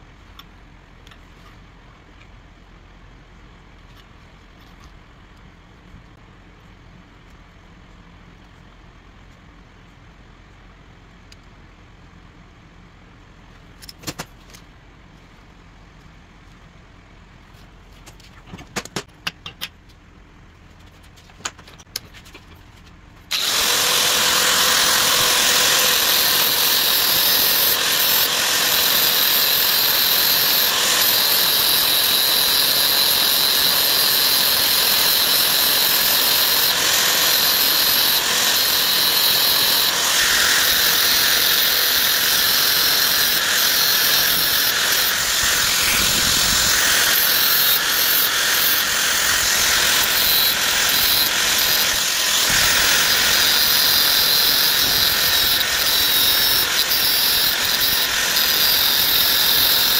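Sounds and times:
grinder grinding steel: 23.3s - 59.9s.

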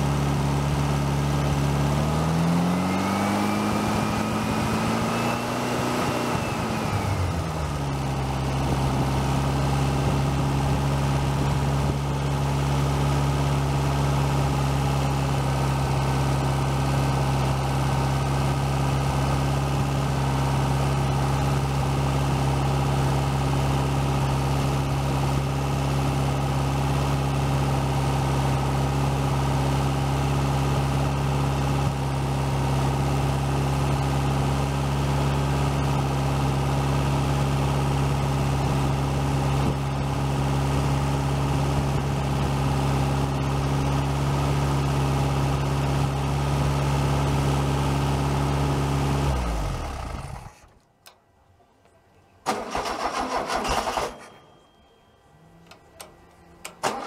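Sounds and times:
air-cooled engine running steadily: 0.0s - 50.6s.

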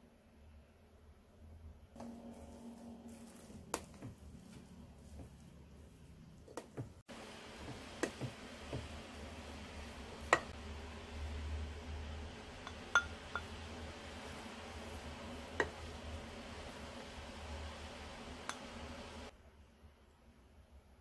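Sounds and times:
steady low hum: 1.7s - 19.4s
paddle stirring rice: 6.5s - 19.3s.

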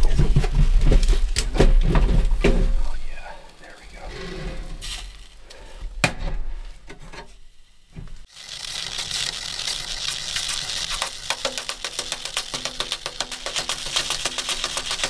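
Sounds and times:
melting snow hissing on stove: 2.8s - 5.9s, 8.2s - 15.0s.

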